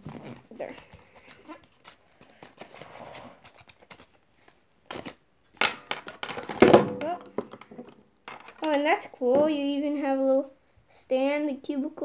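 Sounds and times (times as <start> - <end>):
cardboard rustling and scraping: 0.0 - 5.2.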